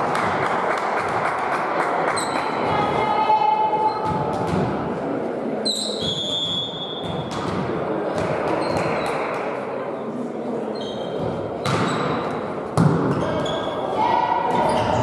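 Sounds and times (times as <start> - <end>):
sports hall noise: 0.0 - 15.0
volleyball hits: 11.2 - 13.5.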